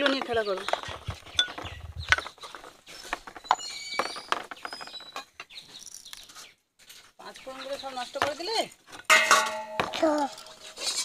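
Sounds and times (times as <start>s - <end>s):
small clay bowls knocking: 9.1s - 11.0s.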